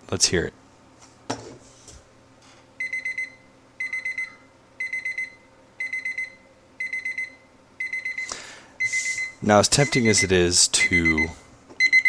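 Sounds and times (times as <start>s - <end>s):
kitchen timer beeping: 2.8s - 12.0s.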